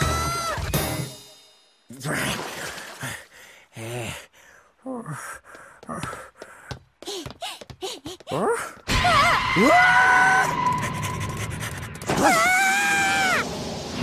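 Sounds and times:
cartoon high-pitched screams: 8.9s - 11.1s, 12.1s - 13.5s.

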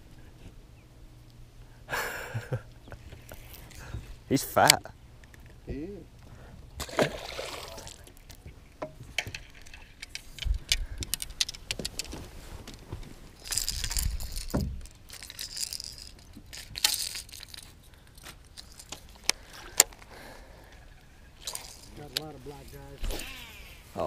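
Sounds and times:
fishing gear clicks and knocks: 7.9s - 20.1s, 21.4s - 23.3s
rustling: 9.4s - 20.1s.

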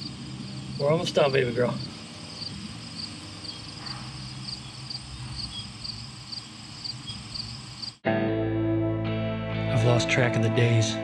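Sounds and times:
steady low hum: 0.0s - 7.9s
cricket chirping: 0.0s - 8.0s.

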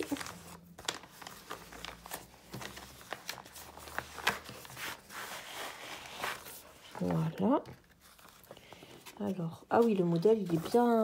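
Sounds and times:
plastic packaging crinkling: 0.0s - 5.1s.

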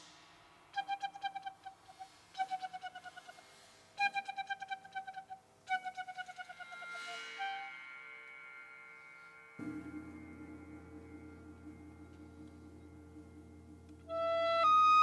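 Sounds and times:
percussion hiss: 0.0s - 4.4s, 6.5s - 15.0s
low ringing percussion tone: 6.9s - 15.0s.

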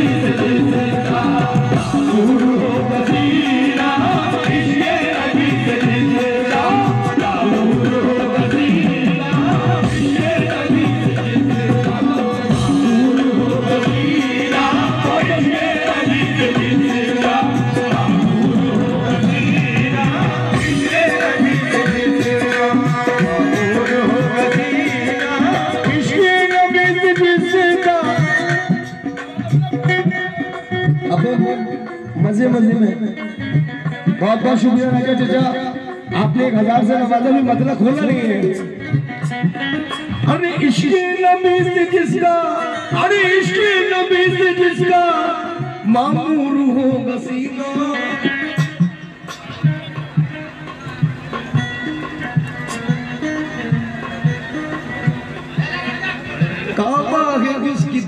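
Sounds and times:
person singing: 0.0s - 36.8s
drums: 0.0s - 58.0s
harmonium: 0.0s - 58.0s.

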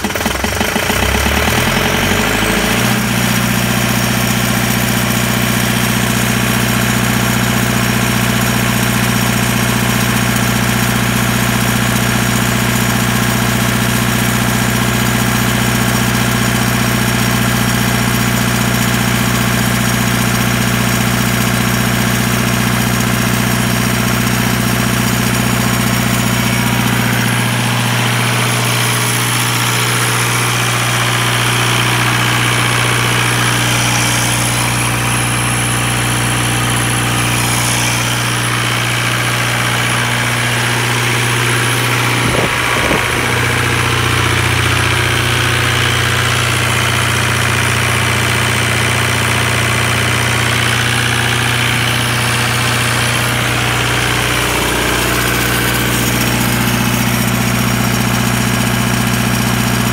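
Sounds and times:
diesel generator engine running: 0.0s - 59.9s.

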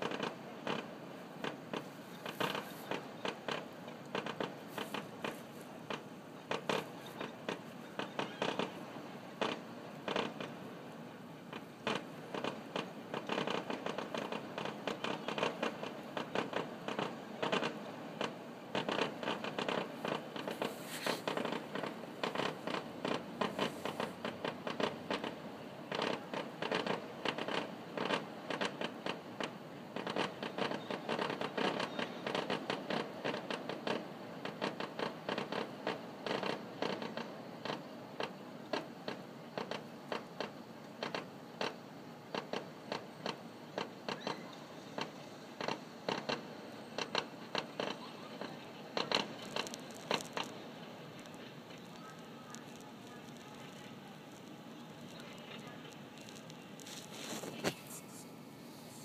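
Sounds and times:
fireworks bangs and crackles: 11.5s - 41.7s.

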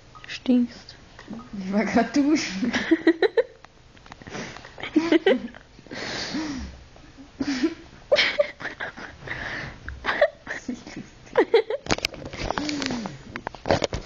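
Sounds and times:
person giggling and laughing: 4.8s - 5.6s, 7.2s - 10.7s, 11.3s - 12.0s.

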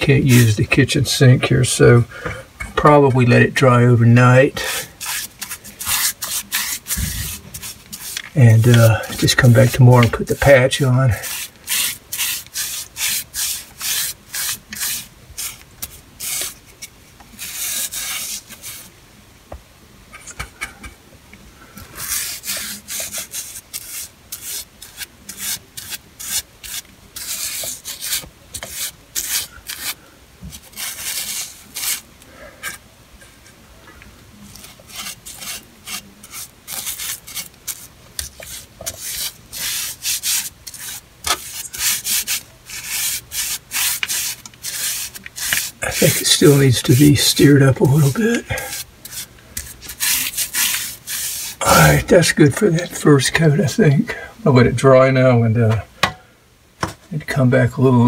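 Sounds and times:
brush scrubbing on metal pipe: 0.0s - 1.2s, 4.6s - 18.9s, 22.0s - 32.0s, 34.5s - 52.9s.

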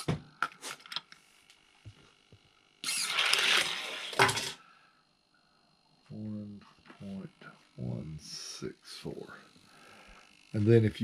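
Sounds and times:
toy car rattling down track: 2.8s - 4.6s.

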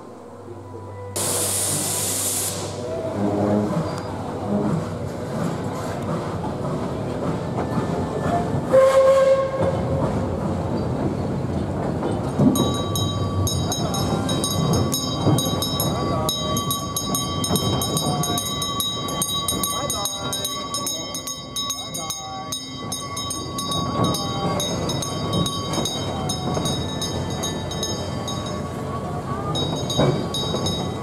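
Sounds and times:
steam hissing: 1.2s - 3.0s
steam whistle toot: 8.7s - 9.7s
hand bell ringing rapidly: 12.6s - 28.6s.

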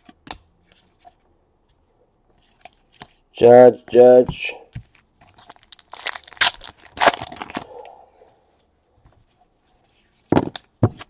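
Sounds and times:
cards being handled: 0.0s - 3.3s
foil wrapper tearing: 5.4s - 7.7s.

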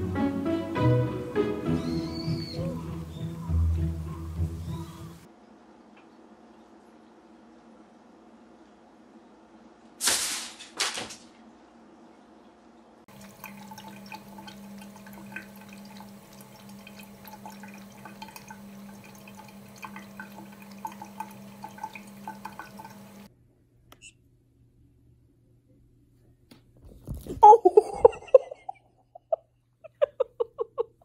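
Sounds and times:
tap water running into sink: 13.1s - 23.3s
water drips and splashes: 13.1s - 23.3s.

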